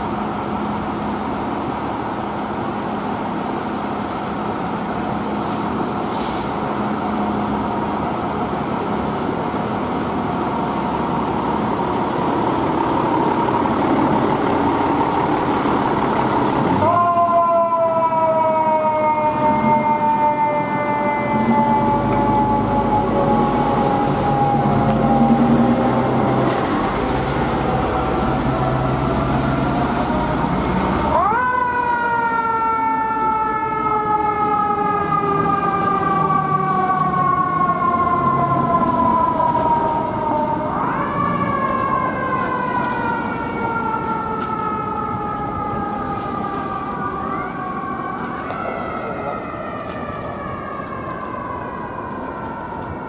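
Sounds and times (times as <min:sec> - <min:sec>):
engine rumble: 0:00.0 - 0:53.0
fire truck siren winding: 0:16.8 - 0:26.6.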